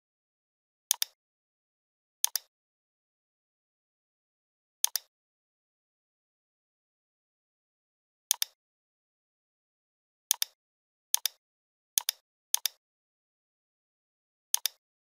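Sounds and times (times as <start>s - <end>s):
computer mouse button clicking: 0.9s - 1.2s, 2.2s - 2.5s, 4.8s - 5.1s, 8.3s - 8.6s, 10.3s - 10.6s, 12.0s - 12.8s, 14.6s - 14.8s.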